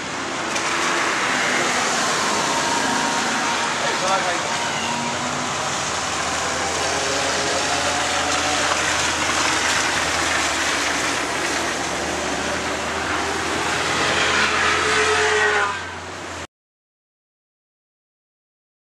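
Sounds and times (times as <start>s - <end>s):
race car engines: 0.0s - 16.5s.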